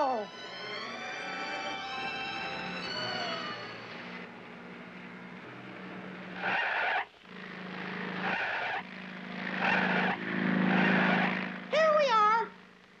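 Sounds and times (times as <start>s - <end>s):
cartoon engine hum: 0.0s - 6.5s
tires screeching skids: 6.3s - 11.6s.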